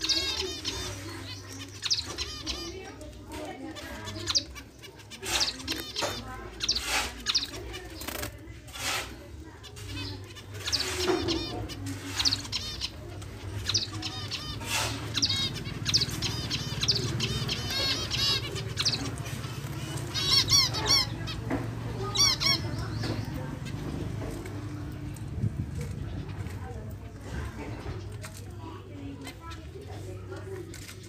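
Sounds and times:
finches chirping: 0.0s - 24.1s.

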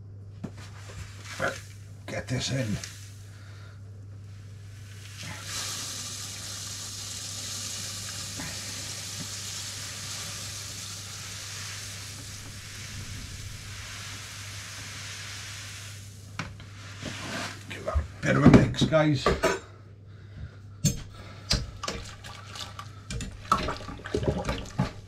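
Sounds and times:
steady low hum: 0.0s - 25.0s
grain poured into water hissing: 1.0s - 3.6s, 4.4s - 17.9s.

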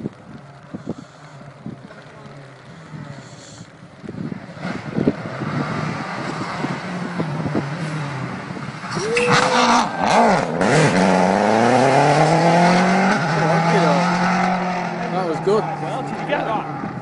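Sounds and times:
rally car engine passing: 4.3s - 17.0s.

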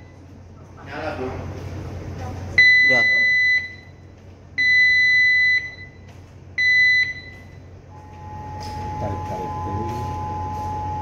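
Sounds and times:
high electronic alarm beeps: 2.6s - 4.0s, 4.6s - 6.0s, 6.6s - 11.0s
low two-note tone: 7.9s - 11.0s.

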